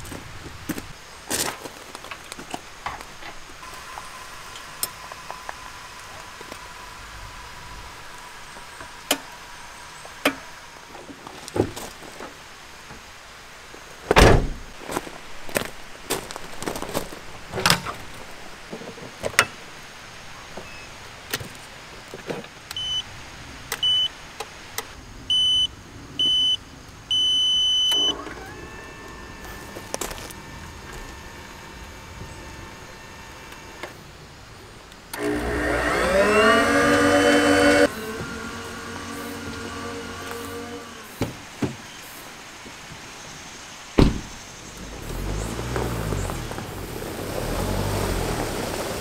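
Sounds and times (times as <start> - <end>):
electric motor whine: 28.0 - 33.9, 35.1 - 41.2.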